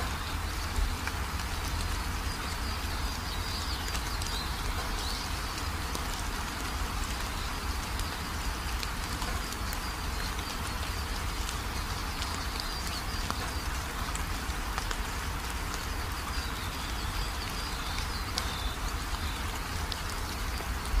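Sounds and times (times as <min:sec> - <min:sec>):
rain on a corrugated roof: 0:00.0 - 0:21.0
water pouring off roof edge: 0:00.0 - 0:21.0.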